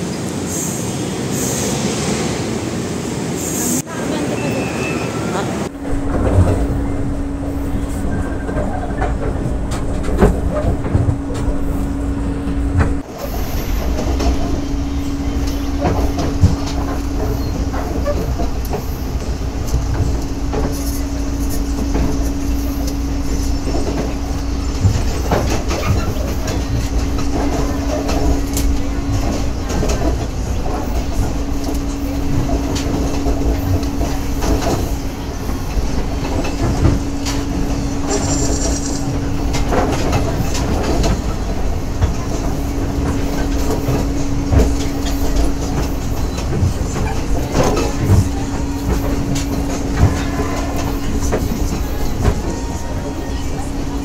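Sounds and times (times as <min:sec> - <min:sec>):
train running rumble: 0:00.0 - 0:54.0
steady hum: 0:05.6 - 0:25.7
wheels clacking over rail joints: 0:05.6 - 0:54.0.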